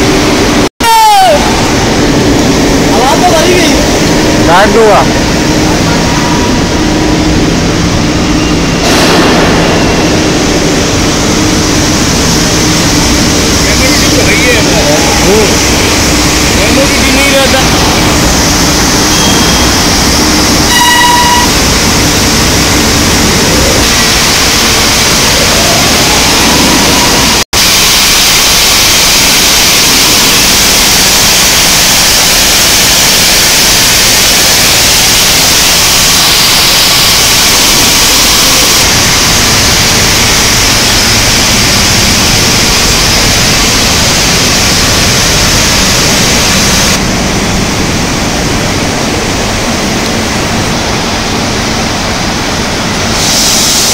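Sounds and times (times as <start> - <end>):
loud machinery hissing: 0.0 - 53.9
short beep: 19.1 - 19.8, 20.7 - 21.6.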